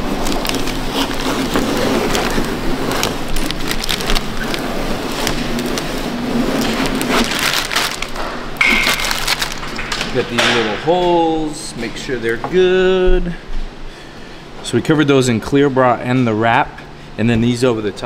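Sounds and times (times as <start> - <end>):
plastic film crinkling and crackling: 0.0 - 10.3.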